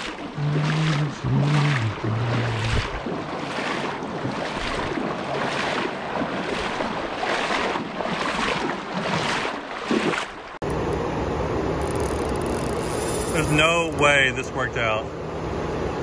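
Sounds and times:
river current rushing and splashing: 0:00.0 - 0:10.6, 0:12.0 - 0:14.9
wind buffeting microphone: 0:02.1 - 0:03.4.

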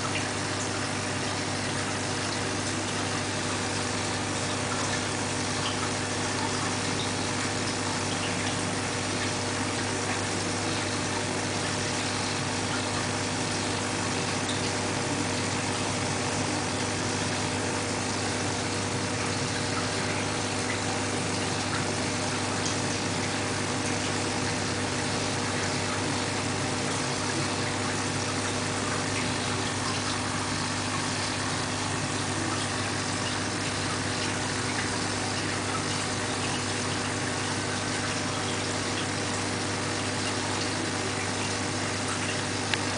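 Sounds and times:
low machine hum: 0:00.0 - 0:42.9.

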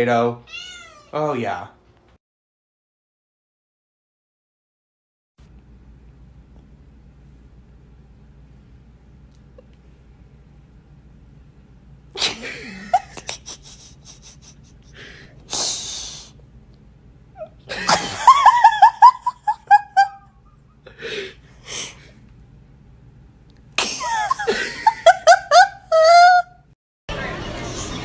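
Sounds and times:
person laughing hard: 0:12.2 - 0:15.2, 0:17.7 - 0:20.3, 0:23.8 - 0:26.6.

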